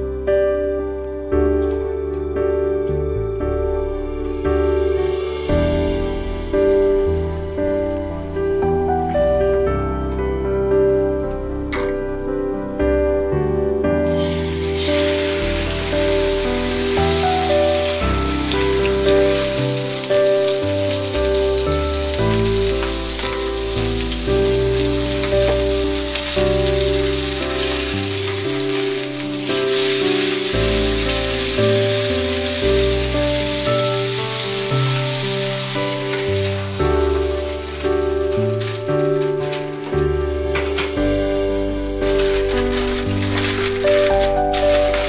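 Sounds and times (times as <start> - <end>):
gentle background music: 0.0 - 45.0
steak sizzling in a frying pan: 14.1 - 45.0.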